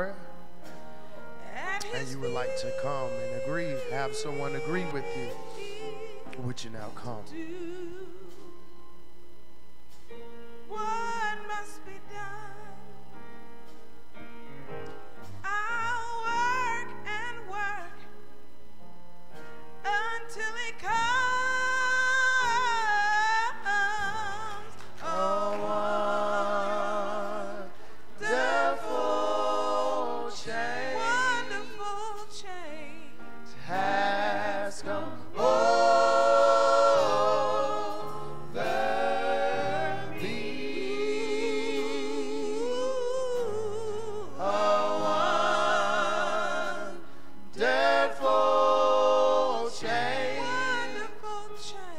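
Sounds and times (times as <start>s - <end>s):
held accompaniment chords: 0.0s - 51.9s
woman singing gospel: 1.4s - 8.7s, 10.7s - 12.9s, 15.4s - 18.2s, 19.8s - 51.9s.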